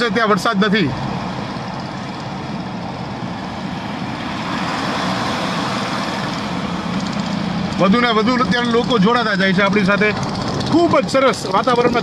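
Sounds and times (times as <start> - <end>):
engine rumble: 0.0 - 12.0.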